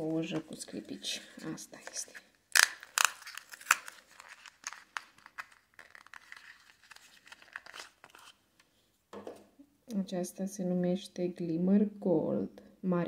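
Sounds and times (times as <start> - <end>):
cardboard box crinkling: 0.5 - 8.4.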